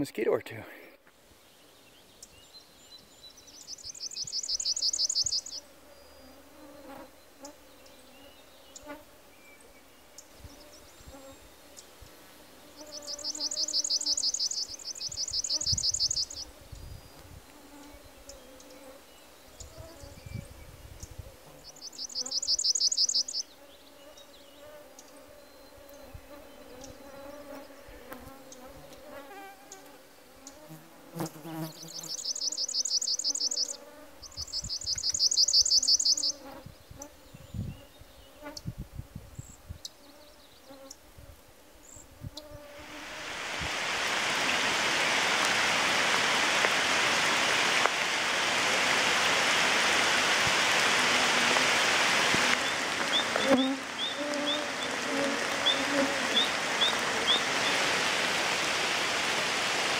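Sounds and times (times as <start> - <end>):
bird singing a rapid trill: 3.2 - 5.6, 12.9 - 16.4, 21.6 - 23.5, 31.7 - 36.4
mosquitoes whining: 50.8 - 58.7.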